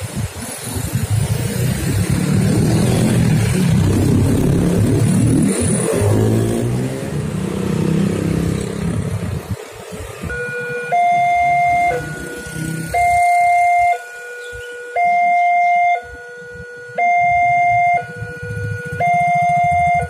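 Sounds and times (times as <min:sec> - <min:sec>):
motorcycles and cars passing: 0:00.0 - 0:15.2, 0:16.2 - 0:20.0
dump truck passing: 0:00.4 - 0:14.2
level crossing warning alarm: 0:10.2 - 0:20.0.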